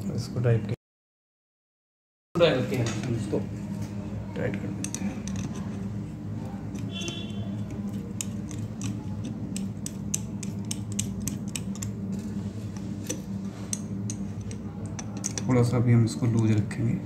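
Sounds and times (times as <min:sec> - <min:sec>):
steady low hum: 0:02.4 - 0:17.0
screwdriver clicking and scraping: 0:04.8 - 0:05.9, 0:06.7 - 0:15.6.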